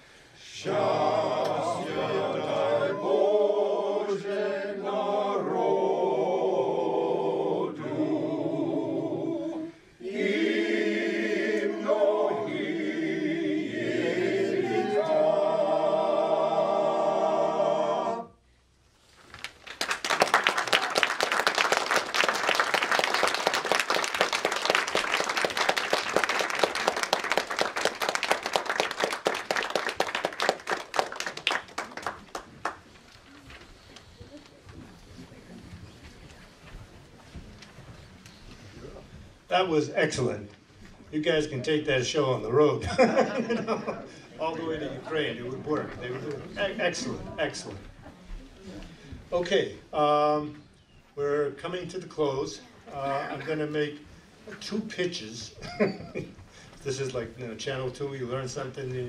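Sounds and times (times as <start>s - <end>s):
men singing a cappella: 0.4s - 18.3s
audience applauding: 19.4s - 33.0s.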